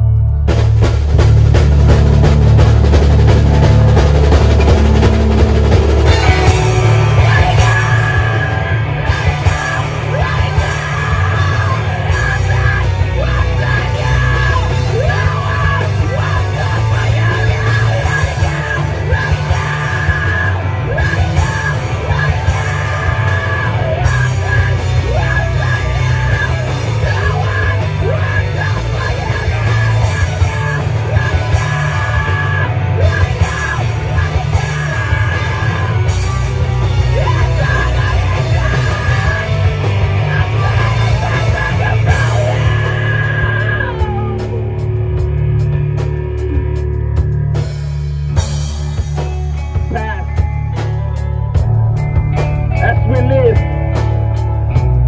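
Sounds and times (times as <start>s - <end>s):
punk band playing live: 0.0s - 55.0s
singer screaming: 6.0s - 45.0s.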